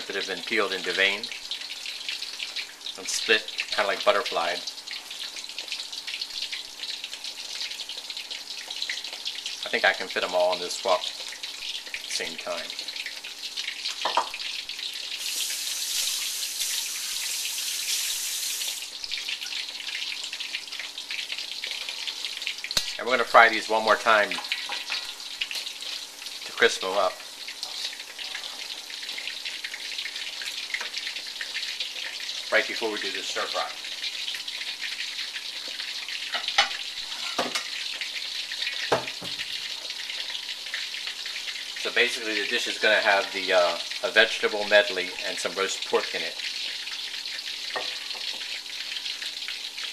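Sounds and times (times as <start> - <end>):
battered shrimp sizzling in hot oil: 0.0 - 49.9.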